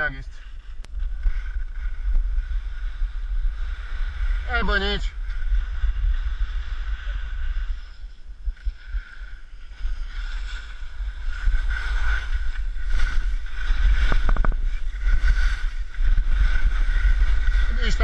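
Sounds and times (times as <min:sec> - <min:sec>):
wind noise on microphone: 0:00.0 - 0:18.0
skis hissing over snow: 0:09.8 - 0:18.0.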